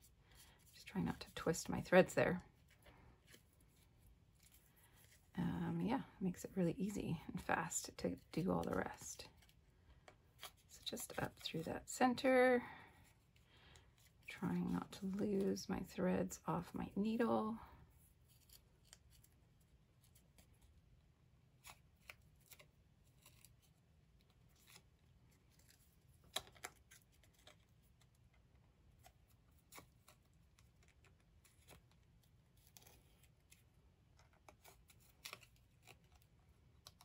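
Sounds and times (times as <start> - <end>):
needle and thread rustling: 0.0 - 20.9.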